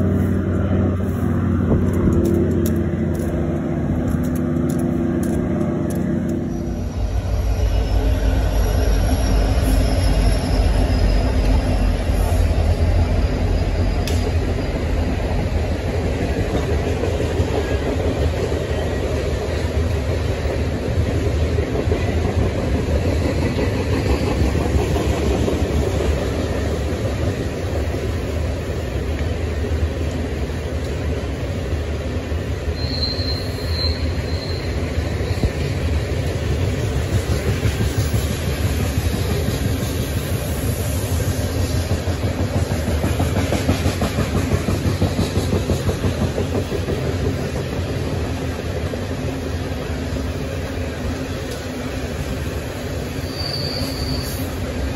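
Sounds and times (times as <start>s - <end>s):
train wheels rumbling on rails: 0.0s - 54.9s
train wheel squeal: 5.7s - 15.7s, 32.6s - 36.0s, 52.6s - 54.8s.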